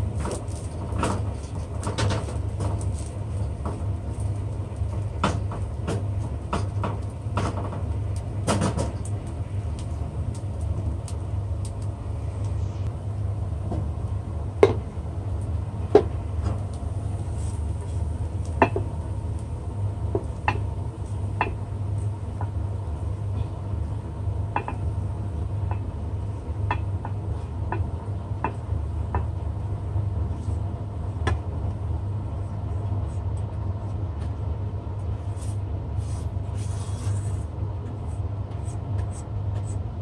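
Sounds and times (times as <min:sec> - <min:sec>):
low machine hum: 0:00.0 - 0:40.0
wok and spatula tapping bowl: 0:14.6 - 0:14.8, 0:18.5 - 0:18.9, 0:21.4 - 0:21.6, 0:24.5 - 0:24.8.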